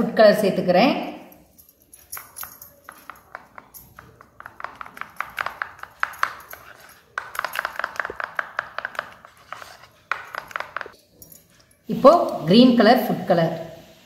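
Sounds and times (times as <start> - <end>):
spoon clicking against plastic bowl: 2.2 - 9.3, 10.1 - 11.0.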